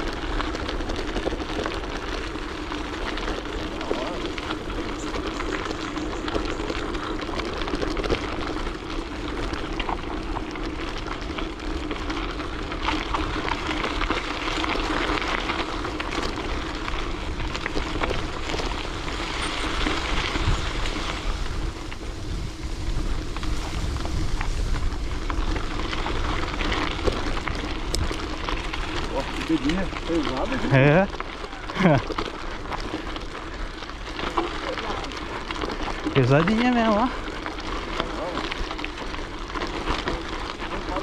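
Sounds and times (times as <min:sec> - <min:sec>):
bicycle tyre road noise: 0:00.0 - 0:41.0
wind rushing over microphone: 0:17.1 - 0:30.8.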